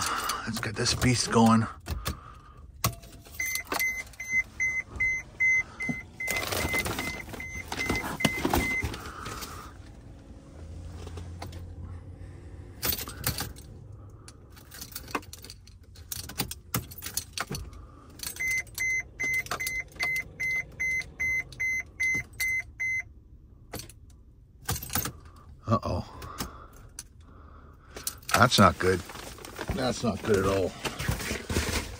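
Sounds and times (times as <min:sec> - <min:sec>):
car keys jangling: 0:00.0 - 0:08.8, 0:12.8 - 0:22.7, 0:23.6 - 0:25.6
vehicle warning chime beeping: 0:03.0 - 0:09.7, 0:18.2 - 0:23.3.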